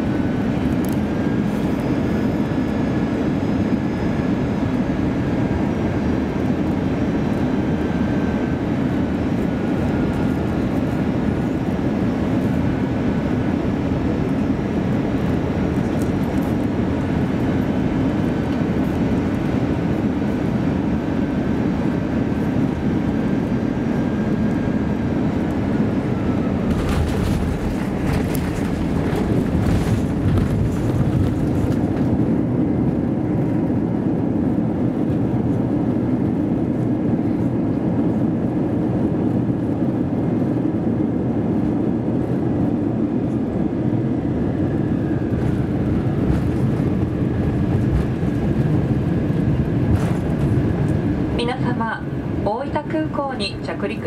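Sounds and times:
aircraft cabin engine rumble: 0.0 - 54.0
wheels rolling with clatter: 26.7 - 32.1.

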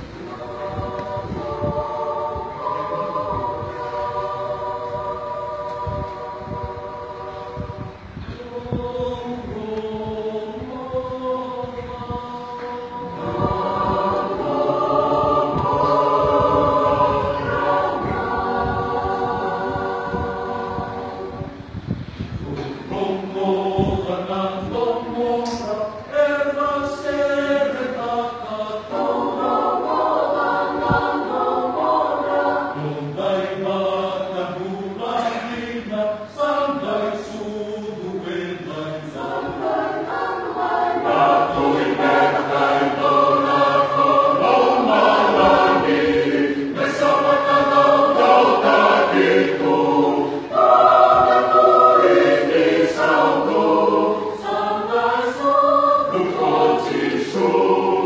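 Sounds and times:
mixed choir singing: 0.0 - 58.0.

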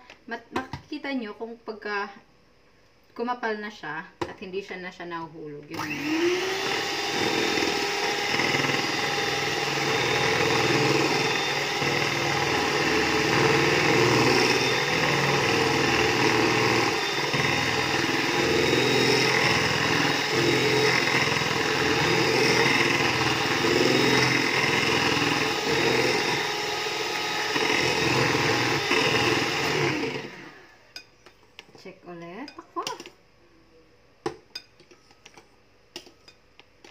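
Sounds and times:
electric mixer whipping cream: 5.7 - 30.8.

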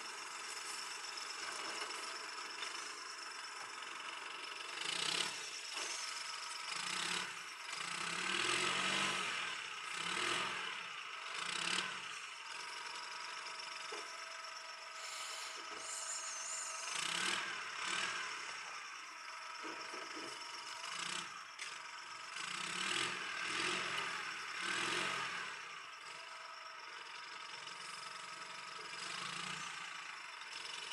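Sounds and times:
engine revving: 4.6 - 26.3.

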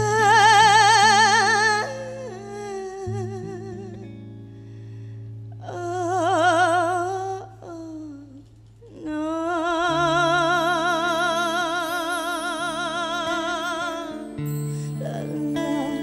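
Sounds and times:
person singing with vibrato: 0.0 - 4.4, 5.6 - 16.0
sustained backing chords: 10.7 - 16.0.

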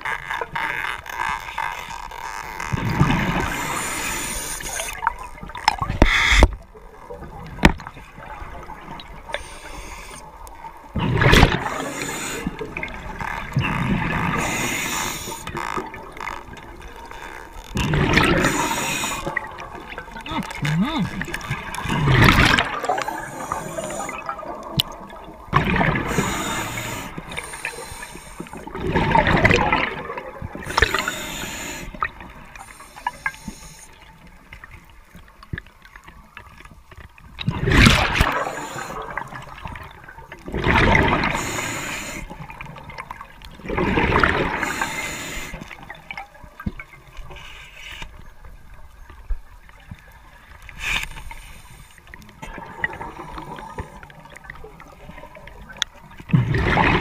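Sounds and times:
regulator breathing bubbles: 18.1 - 24.6, 25.6 - 30.0, 30.6 - 33.9.

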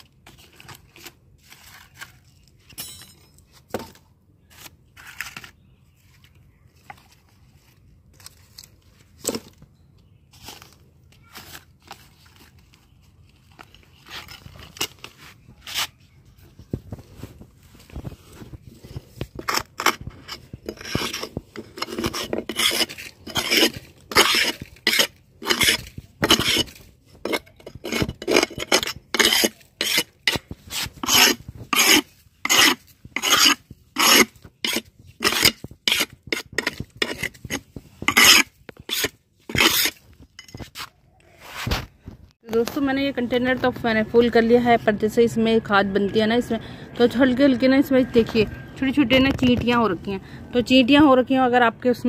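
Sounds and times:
rasping strokes on concrete: 19.4 - 40.0.

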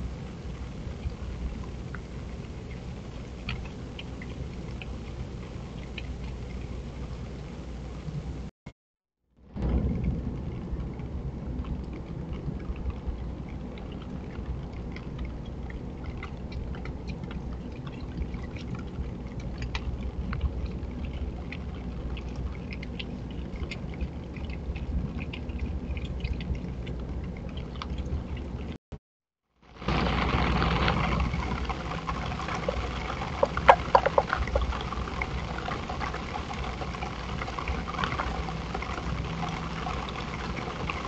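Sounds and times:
low background rumble: 0.0 - 8.5, 9.4 - 28.8, 29.6 - 41.0
animal chewing and crunching: 11.6 - 28.8, 30.0 - 41.0.

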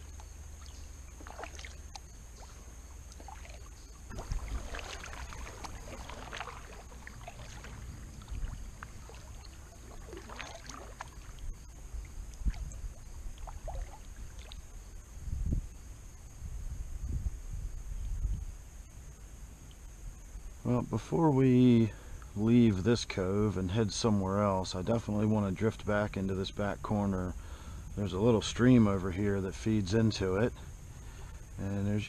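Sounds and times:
paddle splashing through water: 0.0 - 14.8.

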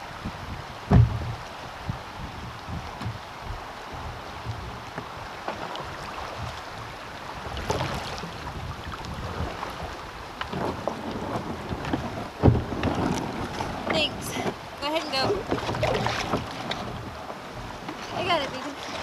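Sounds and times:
paddle splashing in water: 0.0 - 19.0
wind buffeting microphone: 0.0 - 19.0
thump on plastic kayak: 0.9 - 1.4, 2.9 - 3.2, 10.4 - 14.6.

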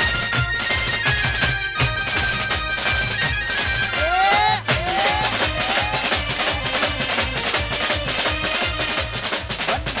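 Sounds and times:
fast drum beat: 0.0 - 10.0
live folk band music: 0.0 - 10.0.

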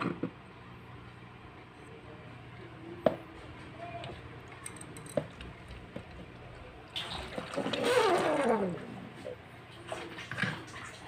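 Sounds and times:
water splashing into a sink: 5.2 - 8.9, 9.7 - 11.0.

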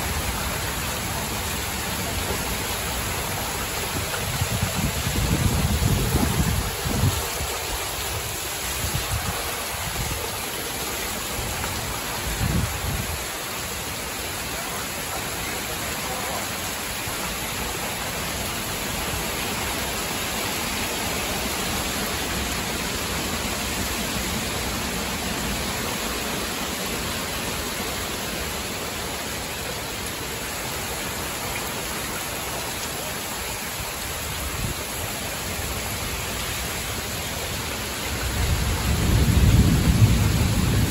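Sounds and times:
heavy rain pouring: 0.0 - 40.9
low thunder rumbles: 1.8 - 7.7, 38.2 - 40.9.

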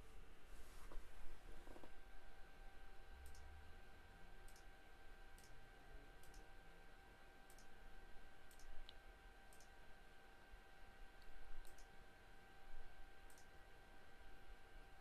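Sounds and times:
thin steady whine: 0.0 - 15.0
soft high ticks: 3.2 - 3.5, 4.5 - 4.7, 5.4 - 5.6, 7.5 - 7.8, 8.5 - 9.8, 11.2 - 11.9, 13.3 - 13.5.

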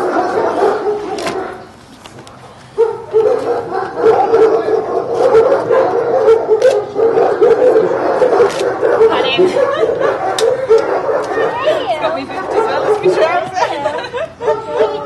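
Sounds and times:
puppies whining and yelping: 3.1 - 15.0.

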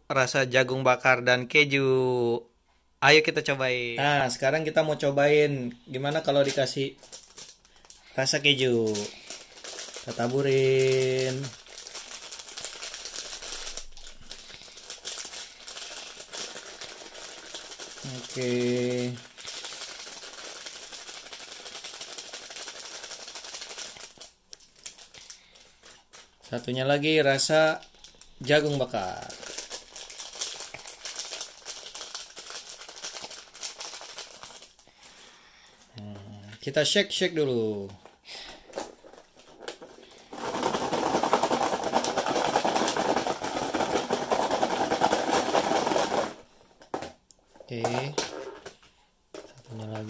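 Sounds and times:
foil sachet crinkling rustle: 5.9 - 35.4, 37.8 - 46.5
food pieces rattling in plastic tub: 8.6 - 24.2, 38.7 - 48.8.

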